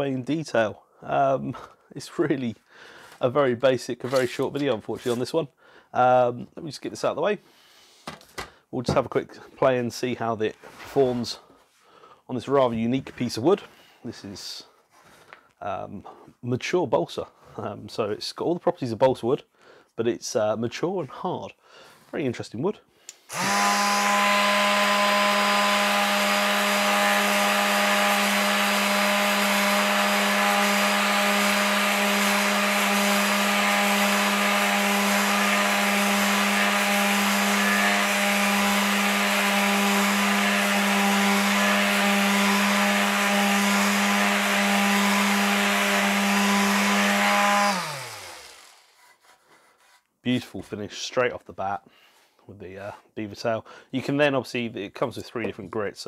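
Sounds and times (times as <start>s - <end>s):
motor winding down: 23.3s - 39.1s, 46.7s - 48.9s
electric sander sanding wood: 23.3s - 50.0s.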